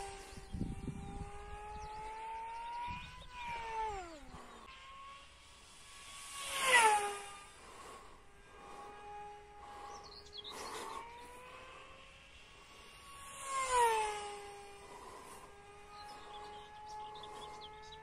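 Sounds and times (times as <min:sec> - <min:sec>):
model plane motor whining: 0:00.0 - 0:18.0.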